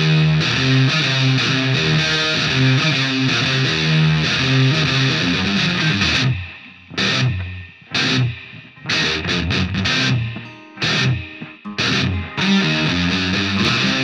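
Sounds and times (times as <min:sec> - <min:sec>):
distorted electric guitar band music: 0:00.0 - 0:14.0
loud guitar chord hits: 0:04.2 - 0:14.0.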